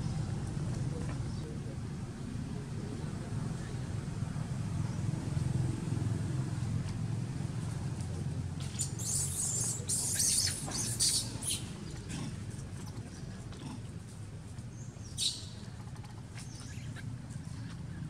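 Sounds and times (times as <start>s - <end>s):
baby monkey squealing: 8.7s - 11.7s, 15.2s - 17.0s.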